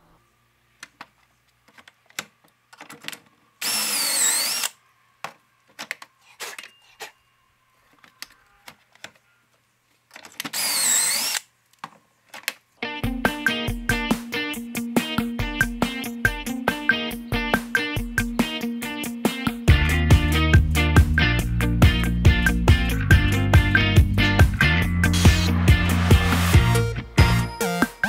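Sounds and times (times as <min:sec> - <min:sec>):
cordless drill whine: 0:03.6 - 0:04.8, 0:10.5 - 0:11.4.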